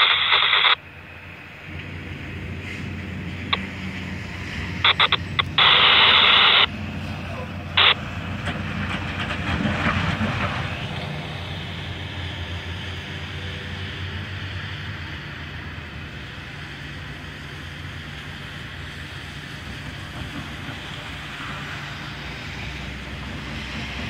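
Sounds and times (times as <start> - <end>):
radio crackling static: 0.0 - 0.9, 3.4 - 8.2
truck driving on wet road: 0.0 - 24.0.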